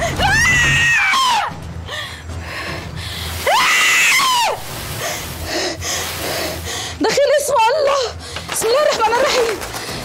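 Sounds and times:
woman screaming: 3.4 - 4.7.

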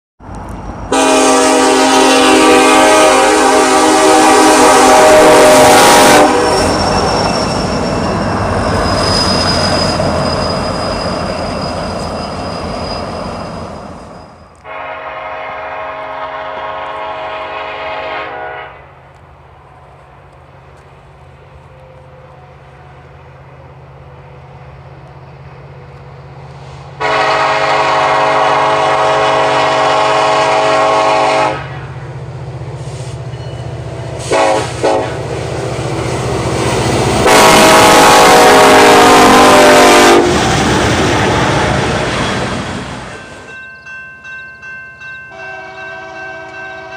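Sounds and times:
freight train passing: 0.2 - 46.9
low locomotive engine drone: 0.2 - 46.9
locomotive air horn blasts: 0.9 - 6.9, 14.6 - 19.0, 27.0 - 32.0, 34.2 - 35.3, 37.2 - 40.4, 45.3 - 46.9.

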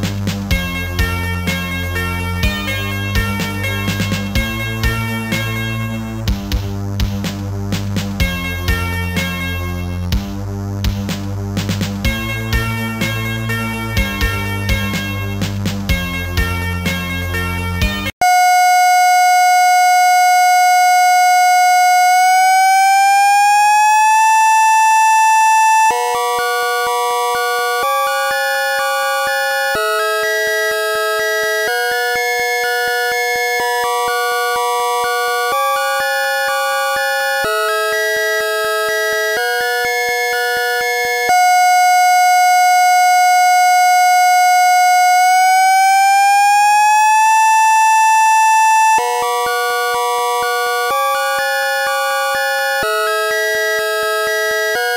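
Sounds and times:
buzzy electronic tone: 23.4 - 54.9.

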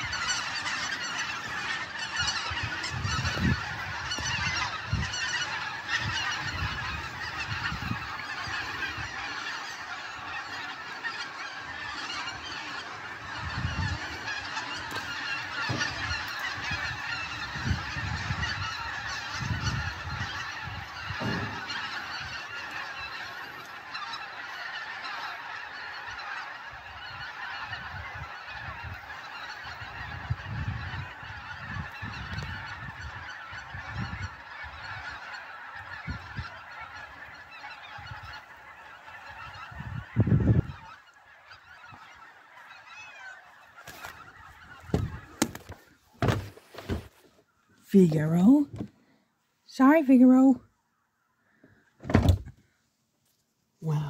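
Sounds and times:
geese honking: 0.0 - 54.0
wind buffeting microphone: 1.4 - 9.2, 13.3 - 14.1, 15.6 - 22.4, 29.9 - 34.8, 39.6 - 40.9, 44.8 - 47.0.

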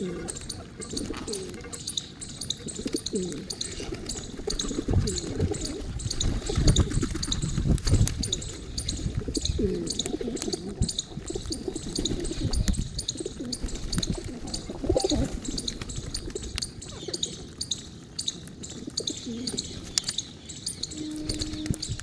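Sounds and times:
high-pitched bird chirping: 0.0 - 7.6, 8.2 - 22.0
pigeons cooing: 0.0 - 22.0
wing flutters: 21.0 - 22.0.

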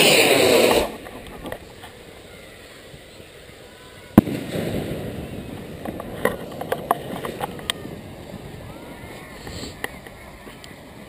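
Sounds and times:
firework launch whoosh: 0.0 - 1.0, 4.2 - 8.5
firework hiss: 0.0 - 11.0
firework bang: 4.2 - 8.6.

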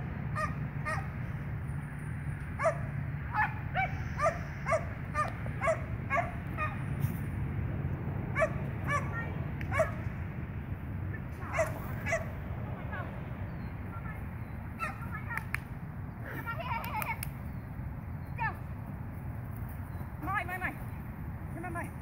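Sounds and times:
dog barking: 0.4 - 1.1, 2.6 - 6.8, 8.4 - 9.1, 9.7 - 10.0, 11.5 - 12.3.

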